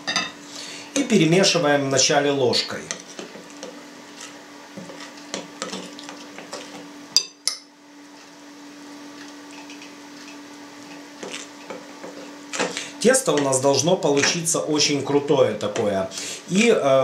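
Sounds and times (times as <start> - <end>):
glass clink: 0.1 - 0.3, 7.2 - 7.7.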